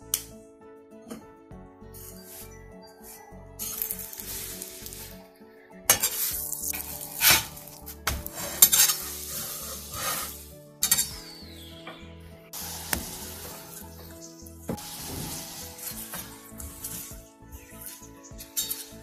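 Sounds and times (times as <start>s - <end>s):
metal spatula scraping pan: 5.9s - 11.1s
flatbread sizzling on griddle: 8.3s - 10.4s, 14.8s - 16.1s.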